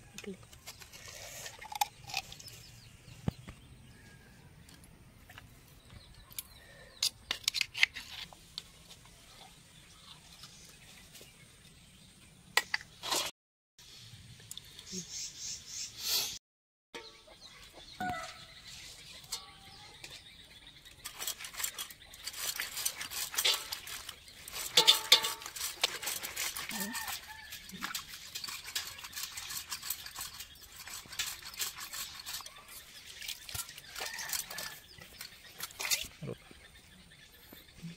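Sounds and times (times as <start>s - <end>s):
rough scraping on wet stone: 20.2s - 36.2s.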